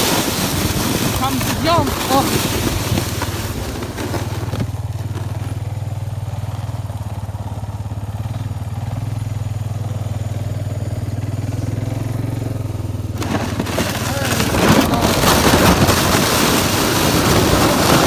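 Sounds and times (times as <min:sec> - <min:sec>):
atv engine idling low: 0:04.3 - 0:13.4.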